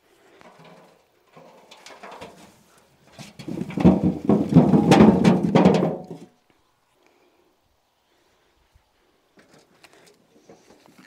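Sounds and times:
potatoes tumbling into metal wheelbarrow: 0.3 - 6.3.

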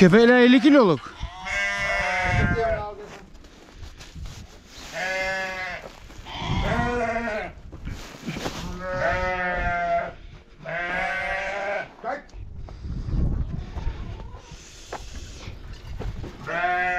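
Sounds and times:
sheep bleating: 0.3 - 2.9, 4.9 - 7.6, 8.6 - 11.9, 16.4 - 16.9.

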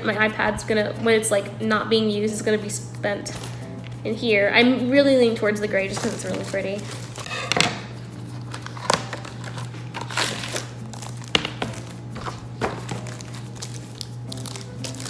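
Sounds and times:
plastic sleeve crinkling: 5.9 - 15.0.

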